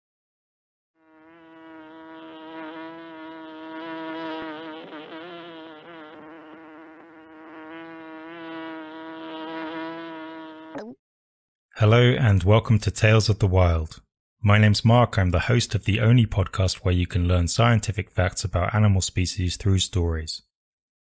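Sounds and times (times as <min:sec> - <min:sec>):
flying insect buzzing: 0:01.0 - 0:11.0.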